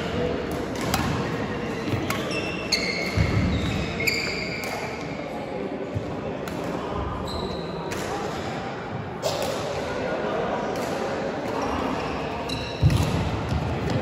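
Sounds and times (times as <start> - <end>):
sports shoes squeaking on court: 1.7 - 5.0, 7.2 - 7.8.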